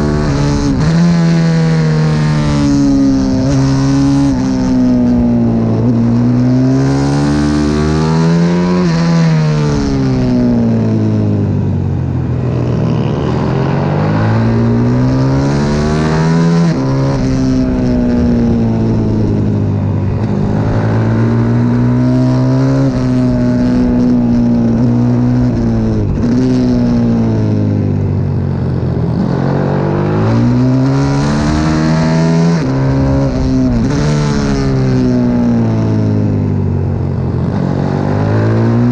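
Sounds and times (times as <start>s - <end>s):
pit bike engine revving: 12.4s - 27.6s, 29.0s - 36.4s.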